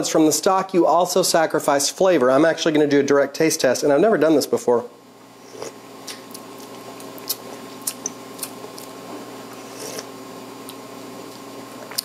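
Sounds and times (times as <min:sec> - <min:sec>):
person slurping: 0:05.4 - 0:06.4, 0:07.1 - 0:10.8.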